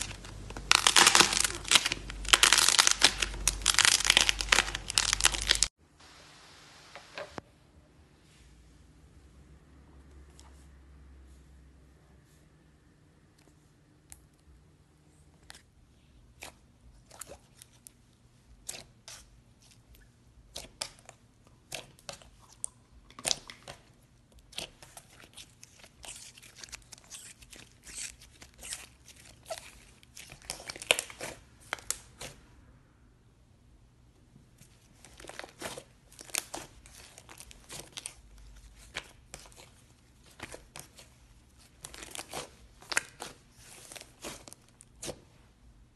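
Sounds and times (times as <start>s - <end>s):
slime squishing with crackling pops: 34.6s - 45.5s.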